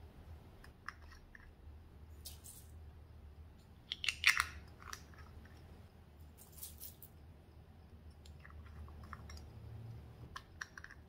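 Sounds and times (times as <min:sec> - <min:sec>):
plastic pots crackling and clicking: 0:03.8 - 0:05.7, 0:08.1 - 0:11.0.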